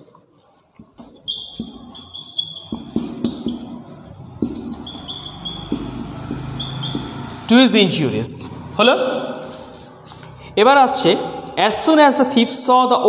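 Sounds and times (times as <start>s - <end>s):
marker squeaking on whiteboard: 0.0s - 7.8s, 9.4s - 10.4s
marker tip knocking on board: 2.6s - 7.3s.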